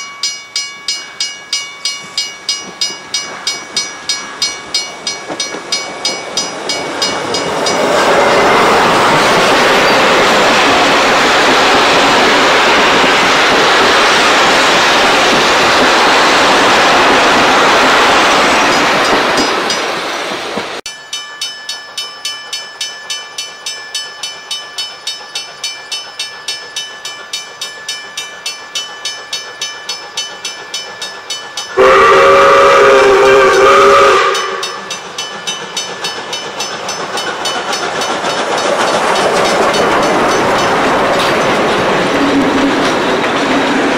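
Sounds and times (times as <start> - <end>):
train carriages rumbling on rails: 0.0 - 43.9
steam locomotive chuffing: 0.8 - 43.9
steam whistle: 31.7 - 34.9.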